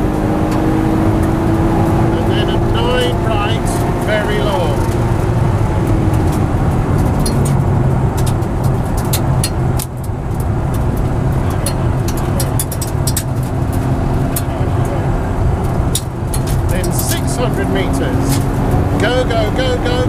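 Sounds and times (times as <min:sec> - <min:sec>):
car engine running hard: 0:00.0 - 0:20.0
sharp clicks and rattles: 0:00.5 - 0:20.0.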